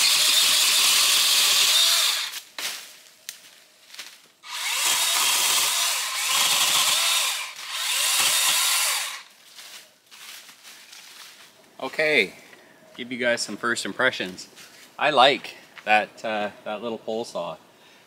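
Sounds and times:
pole saw cutting branches: 0.0 - 2.5, 4.4 - 9.3.

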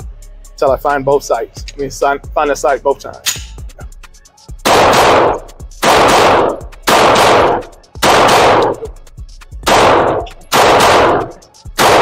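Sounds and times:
handgun shots with echo: 3.2 - 3.6, 4.7 - 8.9, 9.6 - 12.0.

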